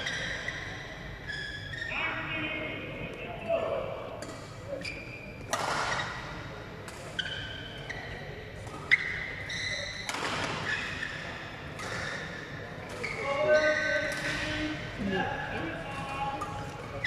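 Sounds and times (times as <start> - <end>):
shoes squeaking on court: 4.8 - 6.3, 7.1 - 14.6
racket hitting shuttlecock: 5.5 - 6.2.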